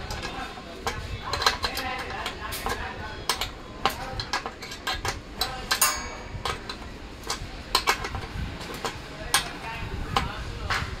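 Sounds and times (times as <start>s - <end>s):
tools clinking on steel stand: 0.0s - 9.6s
ringing metal clink: 5.4s - 8.1s.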